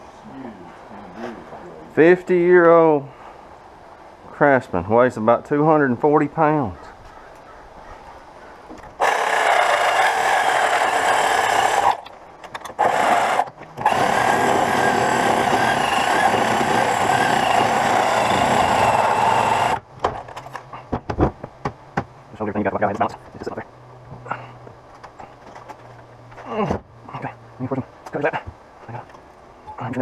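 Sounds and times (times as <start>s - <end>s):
power tool running: 9.0s - 12.1s, 12.7s - 19.8s.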